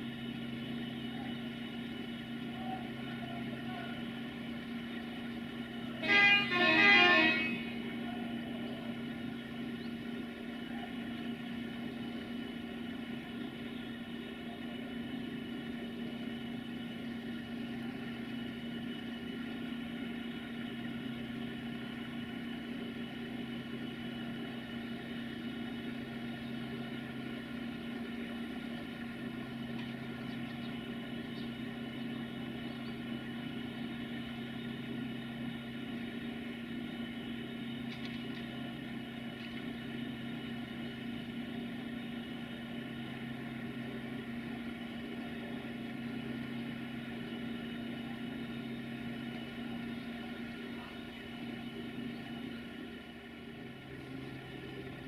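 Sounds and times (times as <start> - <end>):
locomotive engine idling: 0.0 - 55.0.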